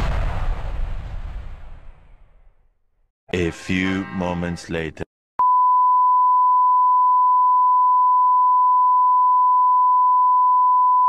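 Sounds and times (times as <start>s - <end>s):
steady test tone beep: 5.4s - 11.0s.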